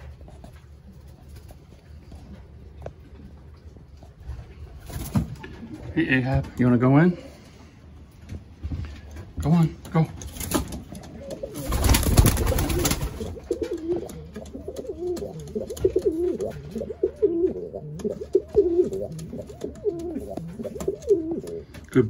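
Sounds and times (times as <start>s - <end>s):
pigeon cooing: 10.8s - 21.9s.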